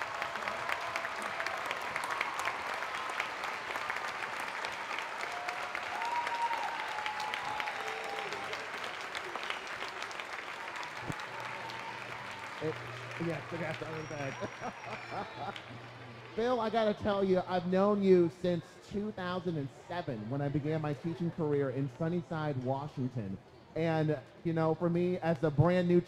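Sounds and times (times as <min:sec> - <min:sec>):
crowd applauding: 0:00.0 - 0:17.1
voices calling out: 0:11.1 - 0:16.4.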